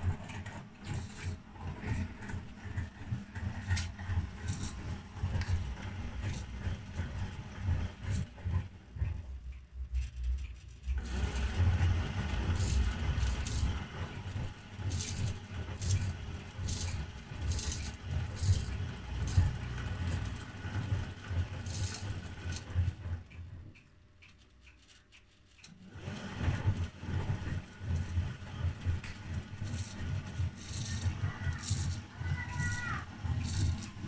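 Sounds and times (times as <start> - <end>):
washing machine drum rattling: 26.3 - 34.0.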